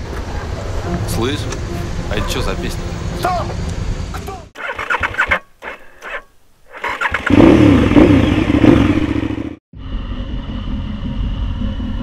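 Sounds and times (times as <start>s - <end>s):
motorcycle engine revving: 4.6s - 5.4s, 6.0s - 12.0s.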